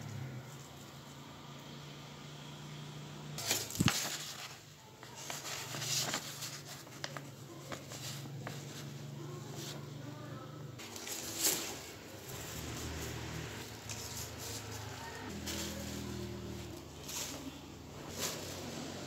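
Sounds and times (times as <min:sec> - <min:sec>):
paper rustling and crackling: 0:03.4 - 0:09.8, 0:10.8 - 0:19.0.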